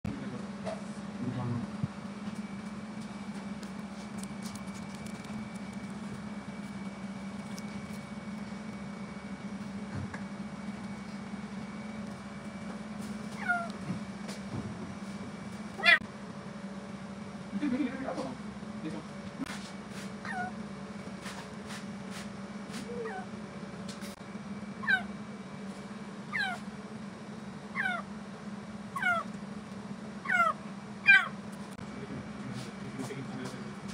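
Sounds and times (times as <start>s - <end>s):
low machine hum: 0.1s - 33.9s
kitten meowing: 13.4s - 13.8s, 15.8s - 16.0s, 20.2s - 20.5s, 26.3s - 26.6s, 27.7s - 28.1s, 29.0s - 29.3s, 30.2s - 31.3s.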